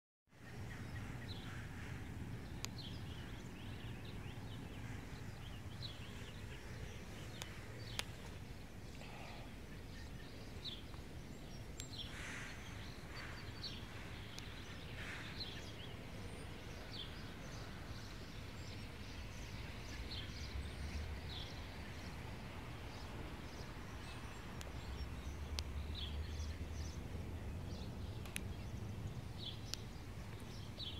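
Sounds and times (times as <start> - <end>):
faint clicks: 7.3 - 9.0, 28.2 - 28.5.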